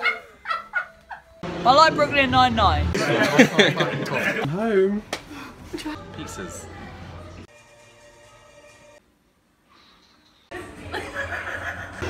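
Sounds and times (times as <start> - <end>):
faint video game music from television: 6.0 - 12.0.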